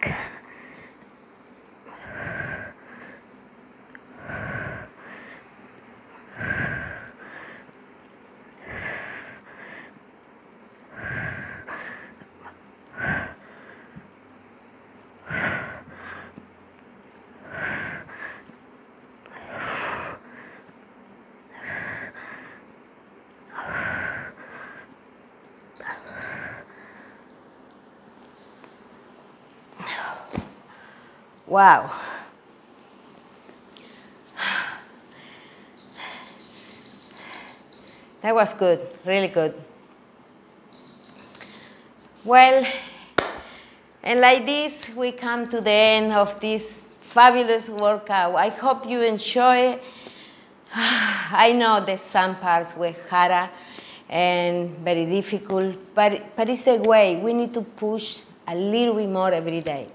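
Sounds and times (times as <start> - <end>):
woman breathing hard: 1.8 - 3.3, 4.1 - 5.6, 6.2 - 7.8, 8.6 - 10.0, 10.8 - 14.1, 15.2 - 16.4, 17.4 - 18.6, 19.3 - 20.7, 21.5 - 22.7, 23.5 - 25.0, 25.8 - 27.3, 33.7 - 38.1.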